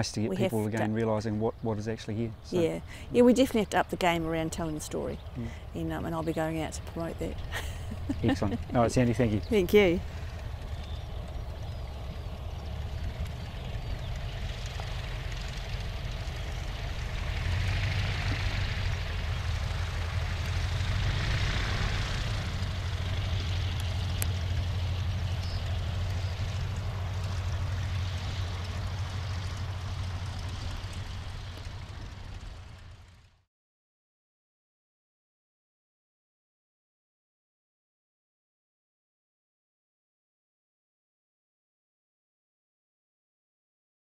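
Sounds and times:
biplane engine at low power: 0:00.0 - 0:33.5.

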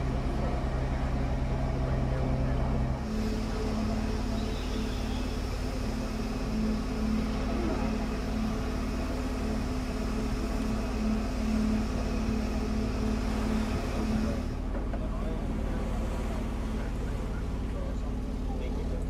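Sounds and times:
engine running with low hum: 0:00.0 - 0:19.0
high engine hiss: 0:03.0 - 0:14.6.

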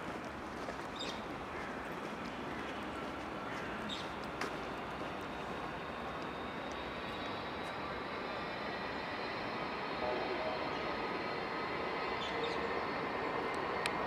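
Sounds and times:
distant engine noise: 0:00.3 - 0:14.0
click: 0:13.5 - 0:14.0.

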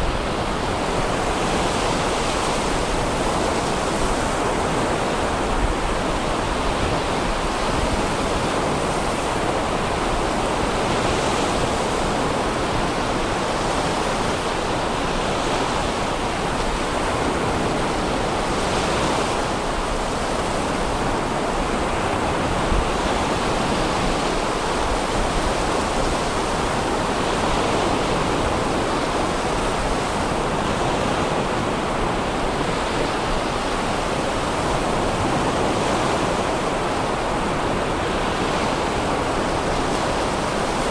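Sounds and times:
sea surf breaking on beach: 0:00.0 - 0:40.9.

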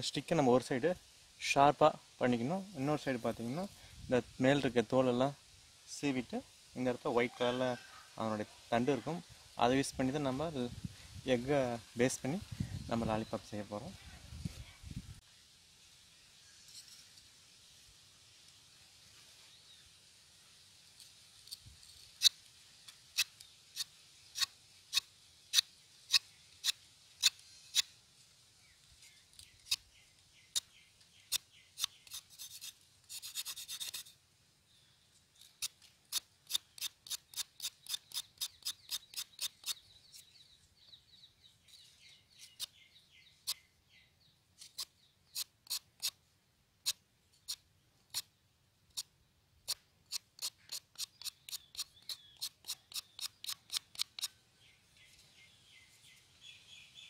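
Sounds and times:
knife scraping bark off stick: 0:21.0 - 0:28.0, 0:30.5 - 0:34.2, 0:35.4 - 0:40.3, 0:41.7 - 0:42.8, 0:44.6 - 0:46.2, 0:46.8 - 0:48.3, 0:48.9 - 0:54.4.

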